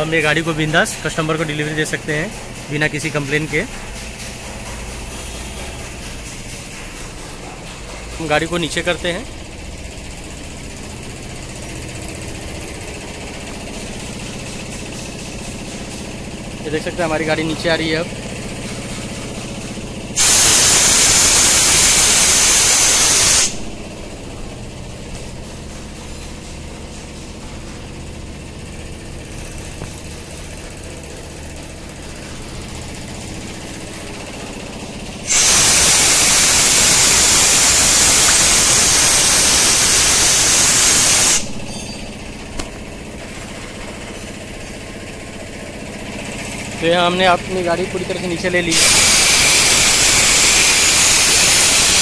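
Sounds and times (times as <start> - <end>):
compressed-air hiss: 20.2 - 23.8, 35.2 - 41.6, 48.7 - 52.0.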